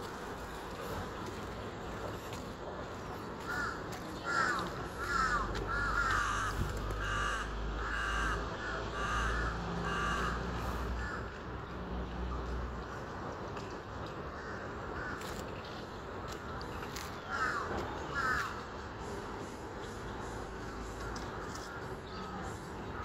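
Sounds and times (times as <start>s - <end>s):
crow cawing: 3.5s - 11.4s, 17.2s - 18.6s.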